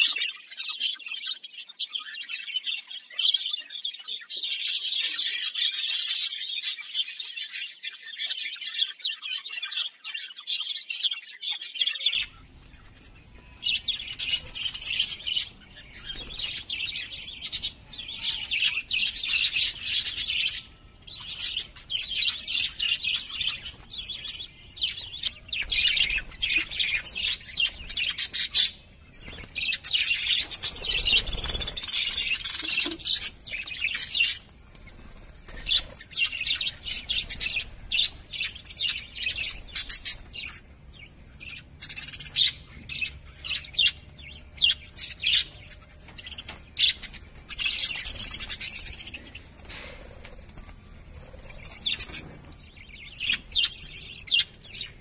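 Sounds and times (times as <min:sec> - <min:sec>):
budgerigars chattering: 0:11.9 - 0:50.6.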